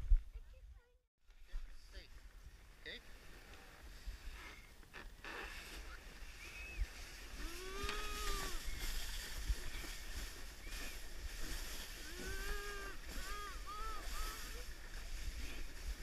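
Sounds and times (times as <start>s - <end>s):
person calling out: 7.4s - 8.6s, 12.0s - 14.7s.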